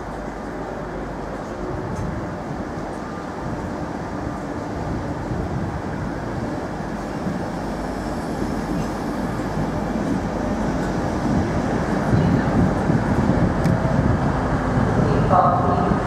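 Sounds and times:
train wheels rumbling on rail: 0:00.0 - 0:16.0.

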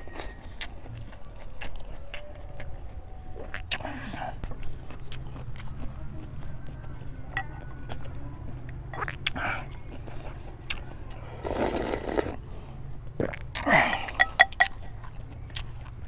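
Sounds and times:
chewing: 0:00.0 - 0:16.0
slurping broth: 0:11.2 - 0:12.6.

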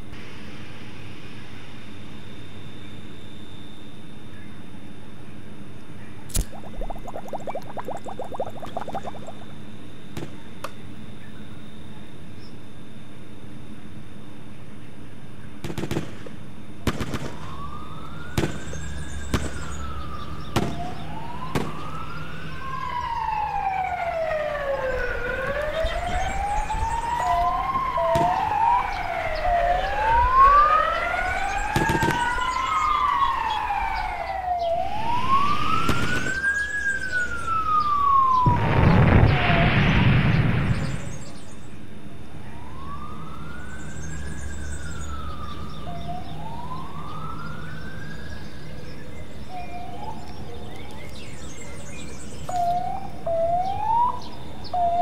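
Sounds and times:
sirens wailing: 0:06.4 - 0:09.6, 0:17.2 - 0:41.1, 0:42.1 - 0:55.0.

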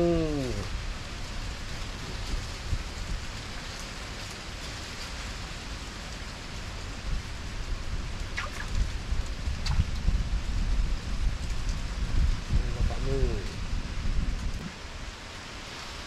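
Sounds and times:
even hiss: 0:00.0 - 0:00.8
low rumble: 0:06.9 - 0:15.3.

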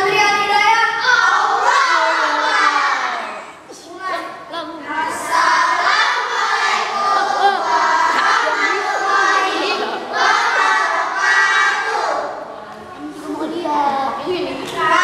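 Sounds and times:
children chanting in unison: 0:00.0 - 0:03.6, 0:04.9 - 0:12.5.

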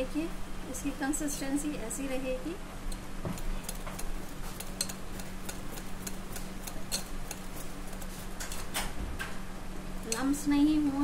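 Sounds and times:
whisk clicking against glass bowl: 0:02.9 - 0:08.7.

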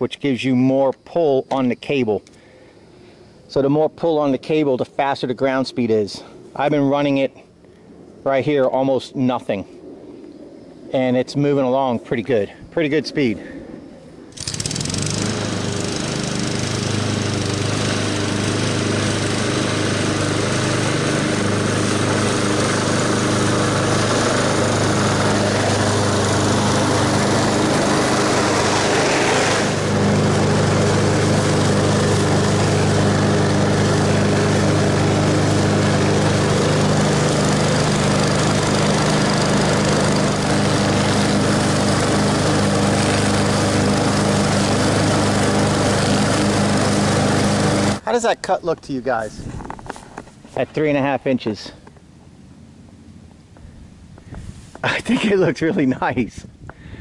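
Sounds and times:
lawn mower engine running: 0:14.3 - 0:48.3.

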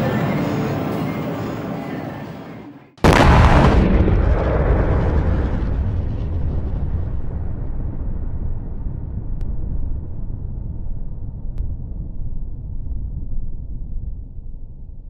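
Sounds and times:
explosion rumble: 0:03.0 - 0:15.0.

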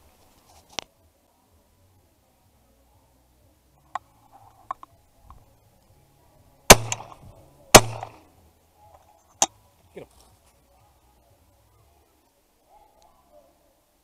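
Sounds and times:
shotgun shots: 0:06.7 - 0:08.2.

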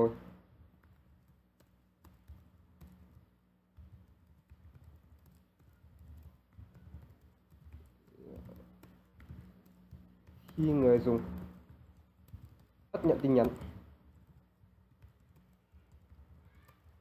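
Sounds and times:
keyboard typing clicks: 0:00.8 - 0:17.0.

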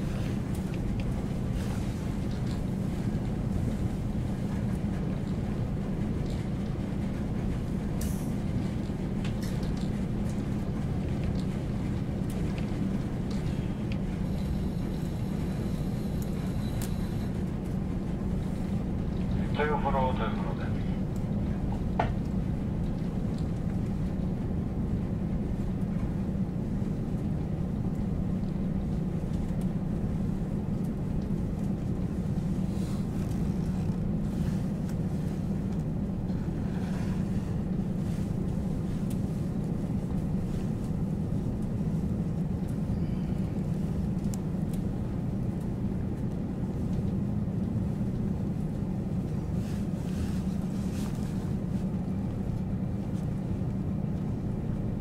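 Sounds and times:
diesel railcar engine idling: 0:00.0 - 0:23.2.

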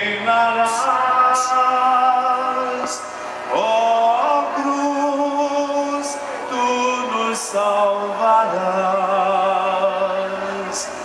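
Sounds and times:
choir singing held notes: 0:00.0 - 0:11.0.

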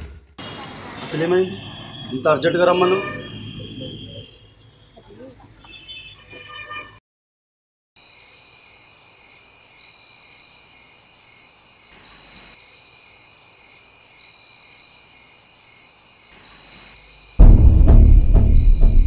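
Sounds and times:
crickets chirring: 0:08.0 - 0:17.5.

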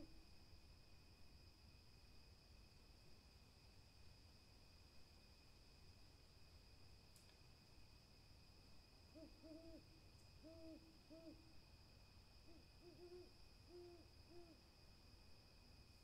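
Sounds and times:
owl hooting: 0:09.1 - 0:11.5, 0:12.4 - 0:14.6.

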